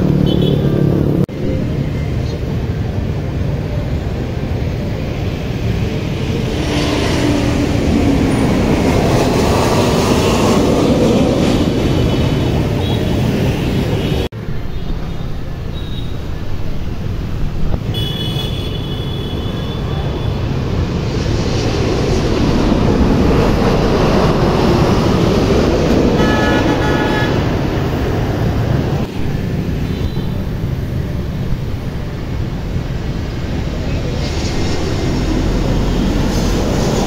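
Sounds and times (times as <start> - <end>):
city traffic: 0.0 - 37.0
jet engines passing overhead: 0.0 - 37.0.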